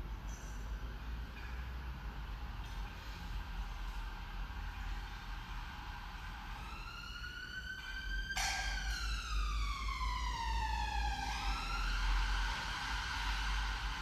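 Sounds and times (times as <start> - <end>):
steady low hum: 0.0 - 14.0
emergency vehicle siren wailing: 6.0 - 14.0.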